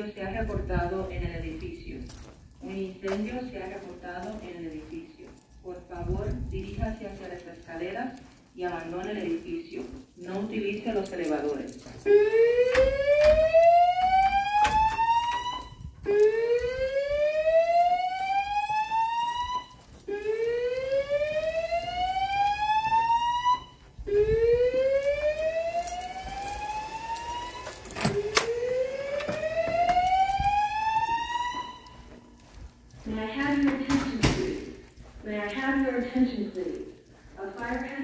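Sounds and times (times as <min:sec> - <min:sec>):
rising whoop alarm tone: 0:12.1 - 0:32.0.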